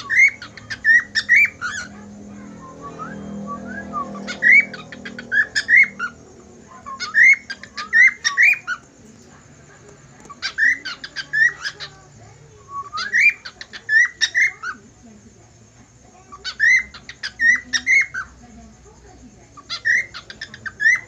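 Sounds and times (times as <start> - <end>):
cockatiel whistling and chirping: 2.6 - 6.2, 6.8 - 8.7, 12.8 - 14.6.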